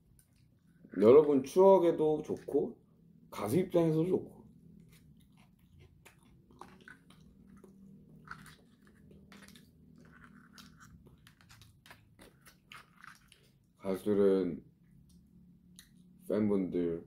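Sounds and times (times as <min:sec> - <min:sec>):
person chewing and crunching: 0:04.7 - 0:13.8.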